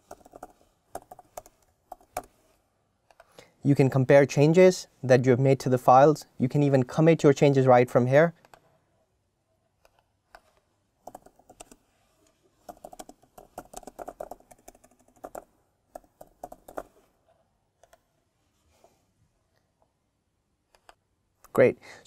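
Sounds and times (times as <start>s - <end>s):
typing on a keyboard: 0.0s - 2.3s, 11.0s - 11.8s, 12.6s - 17.0s.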